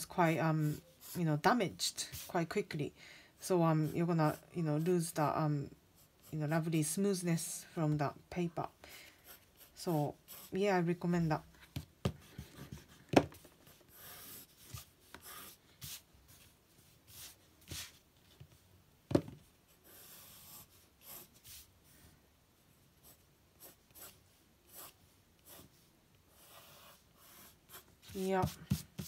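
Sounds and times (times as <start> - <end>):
pencil scratching on paper: 0.2 - 2.6, 9.2 - 10.9, 13.6 - 16.5, 19.7 - 21.7, 23.0 - 29.0.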